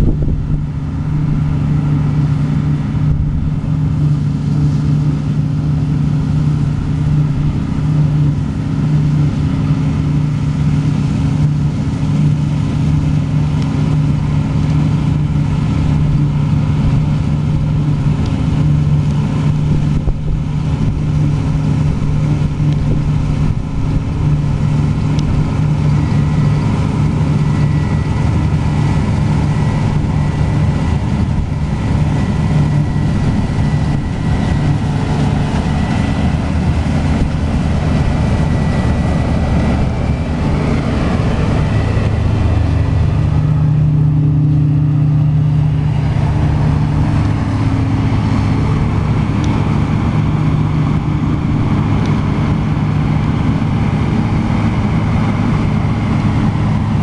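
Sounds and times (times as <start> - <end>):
combine harvester engine drone: 0.0 - 57.0
thin high whine: 0.0 - 57.0.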